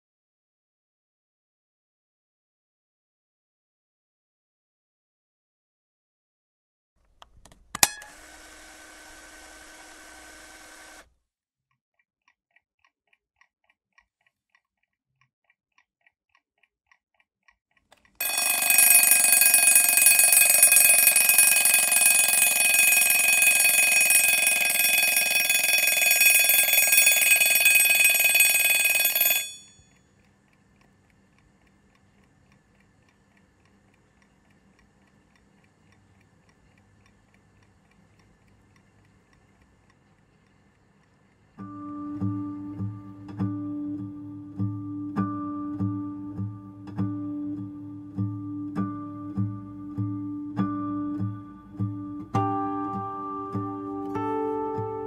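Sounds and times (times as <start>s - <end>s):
alarm clock ticking: 18.1s - 31.0s
alarm clock bell ringing: 18.2s - 29.9s.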